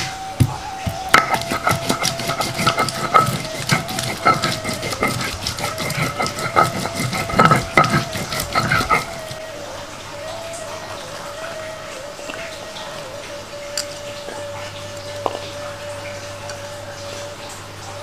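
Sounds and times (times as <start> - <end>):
kitchen utensils clicking and scraping: 0.8 - 9.4.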